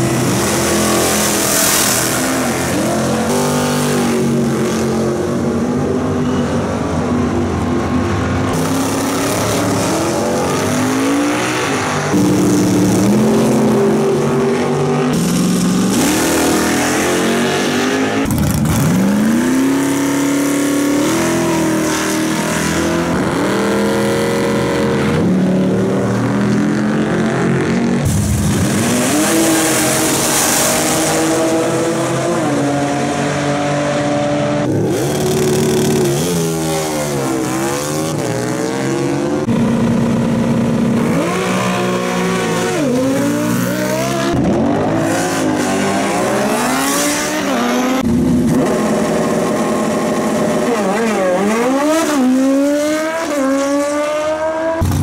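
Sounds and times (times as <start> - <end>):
racing car engines revving: 0.0 - 55.0.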